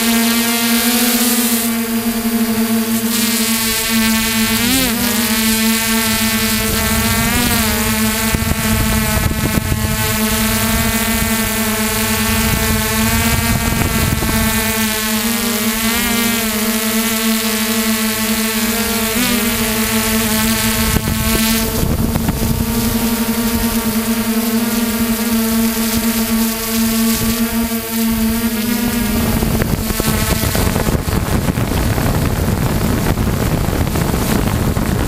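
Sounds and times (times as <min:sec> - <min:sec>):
helicopter rotor drone: 0:00.0 - 0:35.0
wind noise on microphone: 0:00.0 - 0:35.0.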